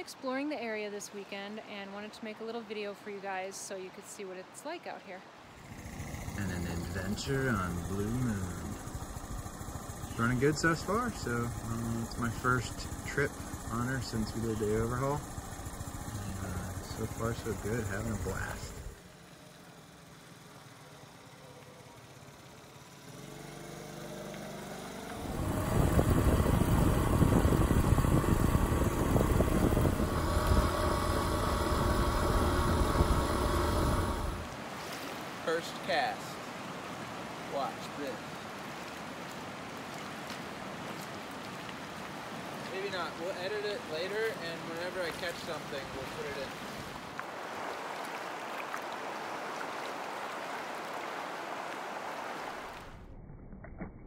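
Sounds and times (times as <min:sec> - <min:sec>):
motorcycle engine running: 0:05.5 - 0:34.6
water rushing over rocks: 0:25.1 - 0:53.0
wind rushing over microphone: 0:25.2 - 0:34.6.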